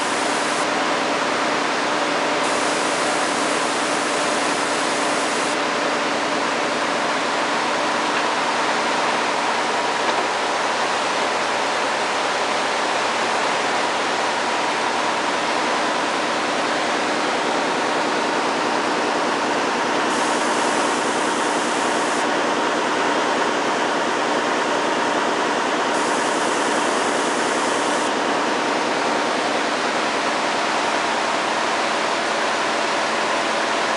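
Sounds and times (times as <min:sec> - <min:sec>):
weaving looms running: 0:00.0 - 0:08.5, 0:17.5 - 0:23.5, 0:24.1 - 0:33.9.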